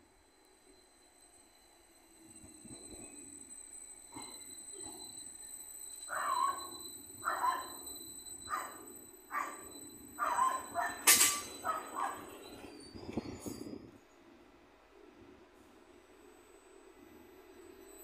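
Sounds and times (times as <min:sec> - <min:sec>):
train humming: 0:00.0 - 0:18.0
dog barking: 0:07.3 - 0:07.7, 0:10.2 - 0:11.0, 0:11.6 - 0:12.3.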